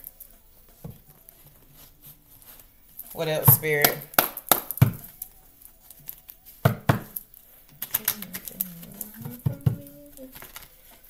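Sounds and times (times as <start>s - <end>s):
cards shuffled and slapped down: 10.3s - 10.8s.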